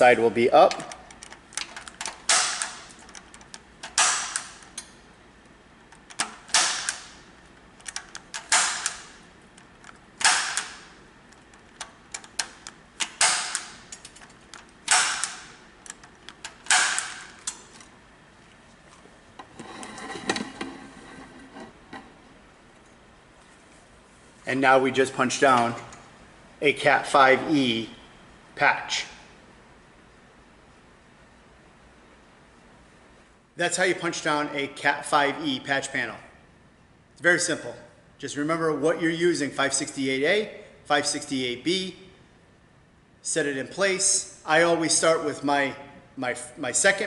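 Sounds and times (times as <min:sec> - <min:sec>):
punch-down tool snapping: 0:00.7 - 0:04.9, 0:06.0 - 0:07.2, 0:07.8 - 0:17.9
scratchy handling noise: 0:17.3 - 0:22.2.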